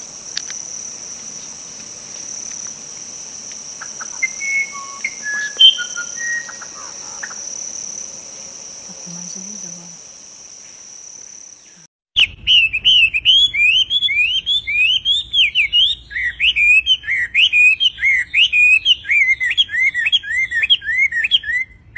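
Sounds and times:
high insect-like trill: 0.0 - 11.8
bird singing whistled notes: 3.8 - 7.4, 11.6 - 21.8.

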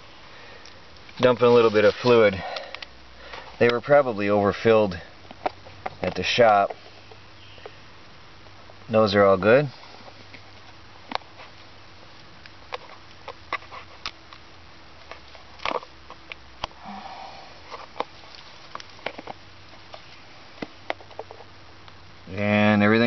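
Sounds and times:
soft rustle: 0.0 - 2.6, 9.7 - 14.1, 17.4 - 21.6
faint steady hum: 0.0 - 23.0.

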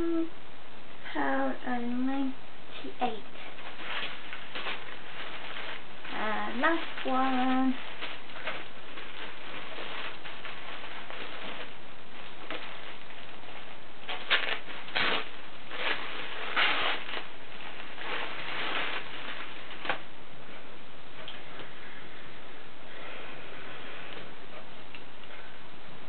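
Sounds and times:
plastic bag rustling and crinkling: 2.7 - 22.2.

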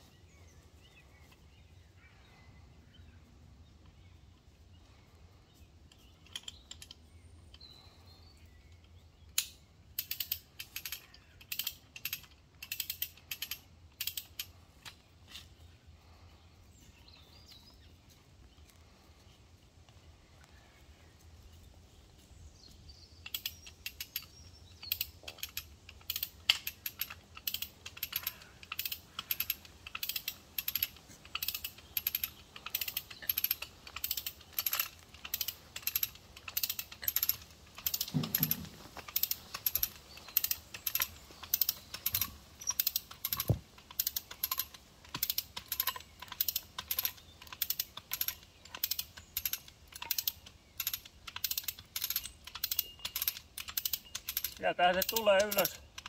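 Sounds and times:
cable winch ratcheting clicks: 5.9 - 7.7, 9.3 - 15.5, 23.2 - 56.0.

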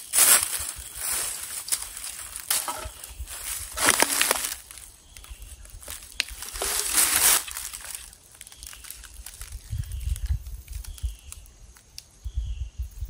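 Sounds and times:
footsteps on dry leaves: 0.0 - 10.4.

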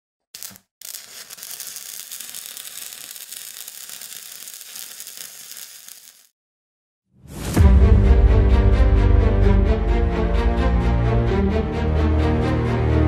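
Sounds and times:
sparks crackling and sizzling: 0.3 - 6.4.

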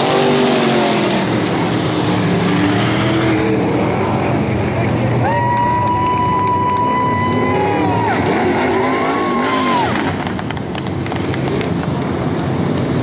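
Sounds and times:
crowd noise: 0.0 - 13.0
race car engines at full throttle: 0.0 - 13.0
scattered clapping: 5.4 - 7.0, 10.2 - 12.1.

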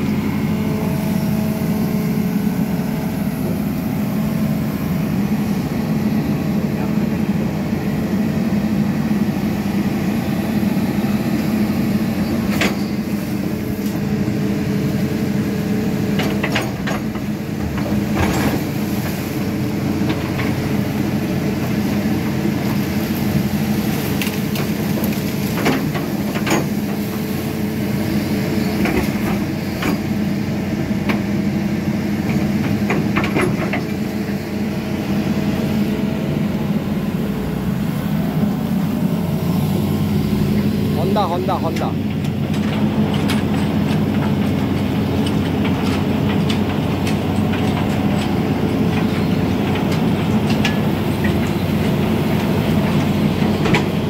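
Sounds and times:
excavator diesel engine running: 0.0 - 54.0
machine knocks and clanks: 16.1 - 18.7, 32.2 - 34.0, 41.0 - 54.0.

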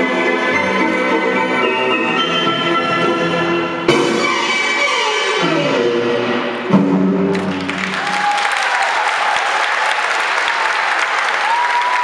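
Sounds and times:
audience applause: 7.3 - 12.0.

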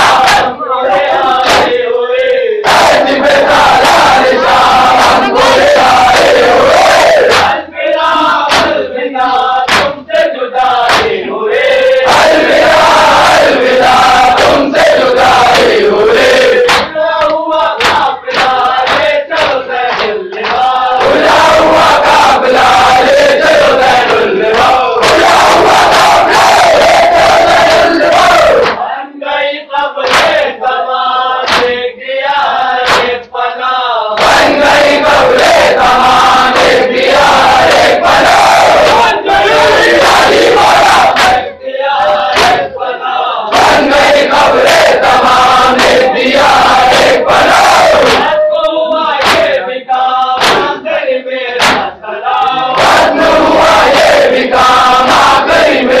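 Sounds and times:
chest-beating slaps: 0.0 - 0.6, 1.4 - 7.6, 8.4 - 8.9, 9.7 - 10.0, 10.7 - 11.2, 11.9 - 28.8, 30.0 - 30.5, 31.4 - 31.9, 32.8 - 33.3, 34.2 - 42.8, 43.5 - 48.4, 49.2 - 49.6, 50.4 - 50.8, 51.6 - 55.9
men chanting in unison: 0.0 - 56.0
hands striking chests: 9.7 - 10.0, 16.6 - 21.2, 31.5 - 31.8, 32.8 - 33.2, 49.2 - 49.5, 50.4 - 50.7, 51.6 - 51.9.

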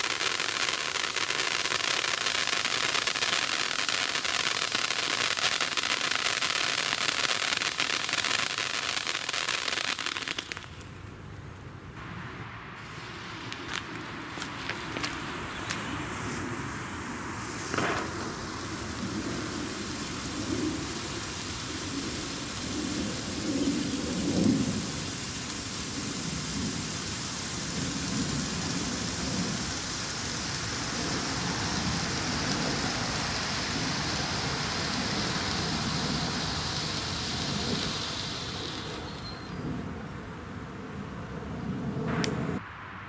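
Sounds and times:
firework fountain hissing: 0.0 - 11.0, 12.0 - 39.7
sharp pop: 17.7 - 18.2, 42.1 - 42.8.

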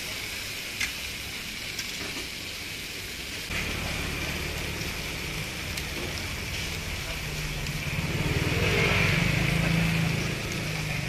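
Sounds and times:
meat sizzling on griddle: 0.0 - 11.0
traffic rumble: 3.5 - 11.0.

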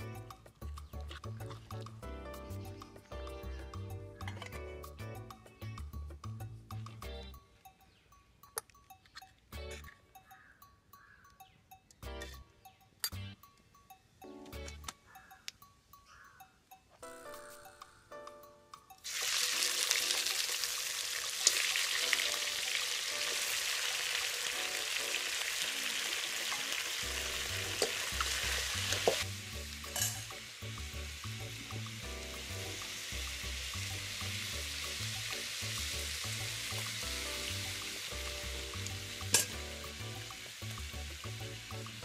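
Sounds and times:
spoon clinking against wok: 7.3 - 17.0, 39.2 - 39.6
chicken sizzling in hot oil: 19.0 - 42.0.

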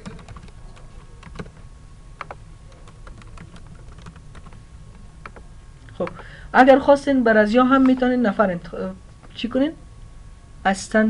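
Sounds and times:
keyboard typing: 0.0 - 6.2, 7.7 - 8.1
low hum: 0.0 - 11.0.

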